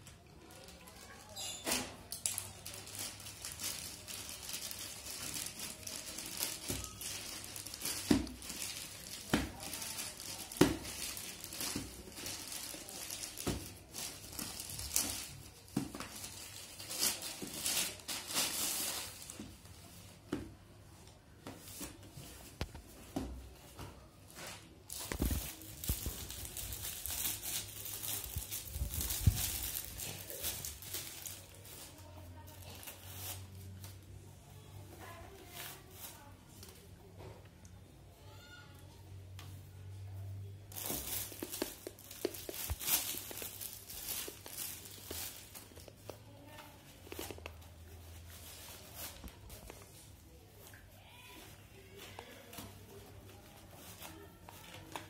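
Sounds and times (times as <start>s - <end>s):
plastic wrapping crinkling: 0.2s - 19.8s, 24.5s - 34.0s, 40.6s - 55.0s
plastic mailer crinkling and tearing: 0.4s - 19.4s, 24.9s - 33.5s, 40.7s - 50.1s.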